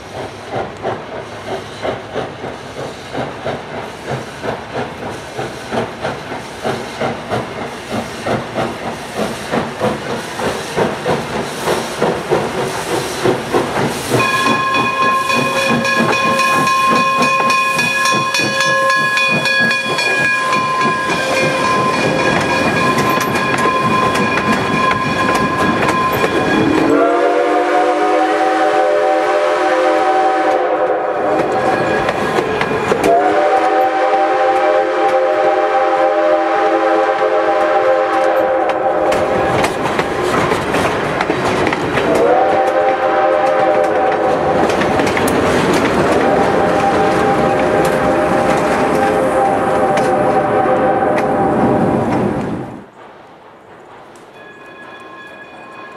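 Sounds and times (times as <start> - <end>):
train wheels clattering on rails: 0.0 - 55.9
steam whistle chord: 14.2 - 32.0, 33.0 - 39.4, 42.1 - 44.5
air horn blasts: 26.6 - 31.5, 33.0 - 39.3, 42.1 - 44.3, 48.0 - 51.4.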